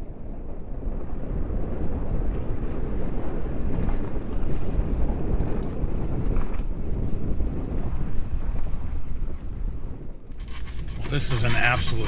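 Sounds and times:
wind noise on microphone: 0.0s - 12.0s
tyres and engine rumbling: 10.3s - 12.0s.

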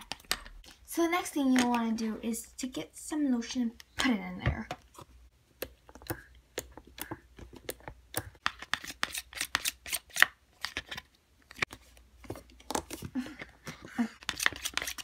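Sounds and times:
plastic spoon stirring in bowl: 4.5s - 11.0s, 11.6s - 15.0s.

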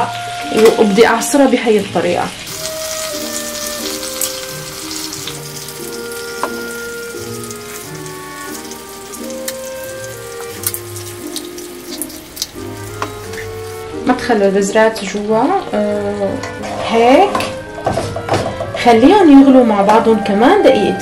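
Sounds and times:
meat sizzling in a frying pan: 0.0s - 14.0s
background music with held notes: 0.0s - 21.0s
crackles in hot fat: 2.4s - 13.8s.

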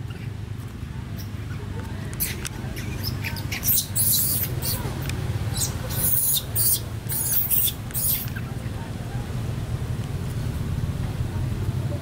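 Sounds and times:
monkey squeaking: 1.1s - 8.5s.

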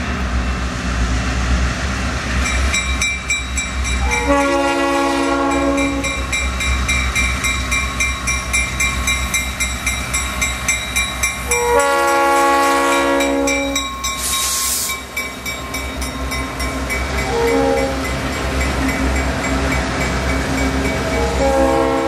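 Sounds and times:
diesel locomotive engines rumbling: 0.0s - 22.0s
train air horn: 4.0s - 6.2s, 11.5s - 14.9s, 17.2s - 18.0s, 21.2s - 22.0s
brief air hiss: 14.1s - 15.0s.

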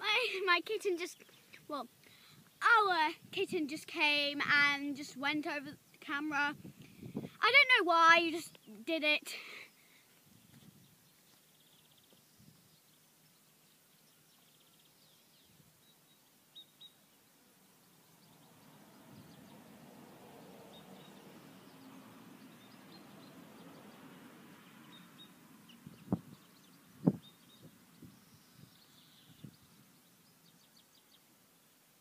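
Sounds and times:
faint bird chirps: 24.7s - 31.3s.

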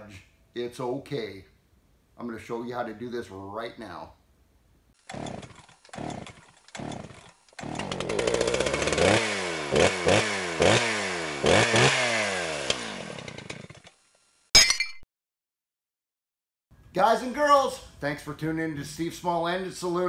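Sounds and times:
chainsaw engine starting and revving: 5.0s - 14.3s.

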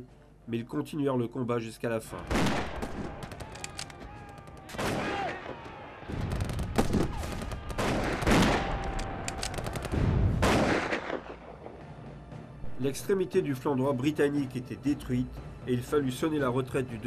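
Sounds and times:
rifle and machine-gun shots: 4.7s - 5.4s, 6.2s - 11.4s.

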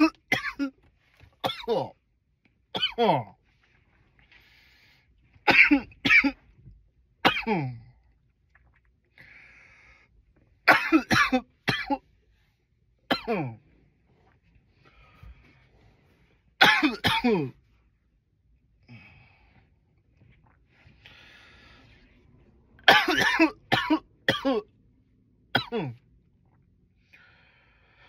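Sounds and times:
man coughing: 0.0s - 0.8s, 1.4s - 2.0s, 2.8s - 3.3s, 5.5s - 6.4s, 7.2s - 7.9s, 10.7s - 12.0s, 13.1s - 13.6s, 16.6s - 17.6s, 22.9s - 24.7s, 25.6s - 26.0s.

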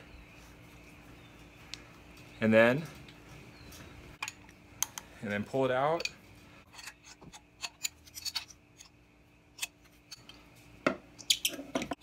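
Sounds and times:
wrench clicking and scraping: 6.7s - 9.0s.

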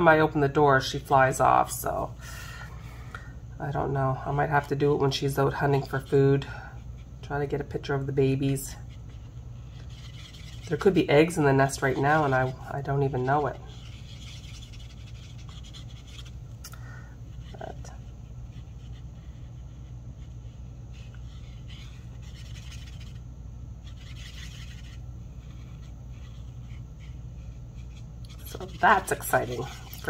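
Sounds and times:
steady low hum: 0.0s - 30.0s
marker scratching on cardstock: 7.5s - 16.4s, 17.3s - 23.2s, 23.8s - 30.0s.

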